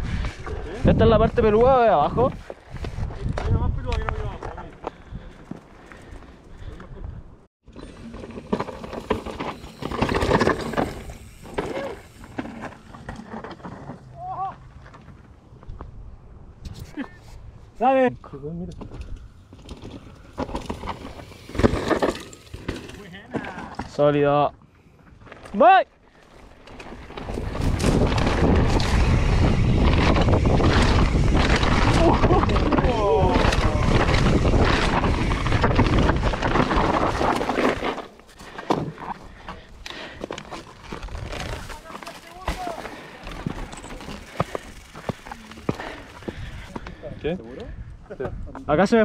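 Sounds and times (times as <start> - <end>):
wind buffeting microphone: 0.0 - 5.6, 27.0 - 37.1
bike rattling over rocky trail: 7.7 - 15.5, 18.8 - 24.4, 25.1 - 49.0
footsteps crunching on rocky dirt: 33.7 - 47.0.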